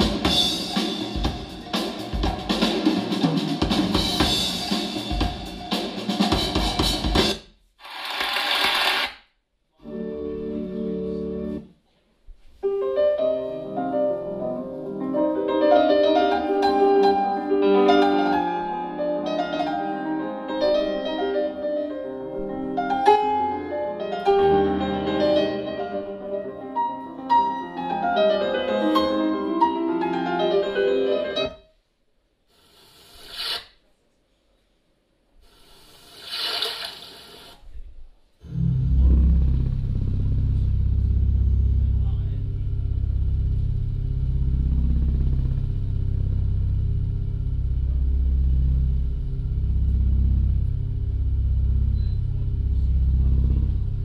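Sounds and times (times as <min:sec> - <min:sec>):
piano-led music over speaker: 0:09.8 - 0:11.7, 0:12.6 - 0:31.6
music with heavy deep bass: 0:38.5 - 0:54.0.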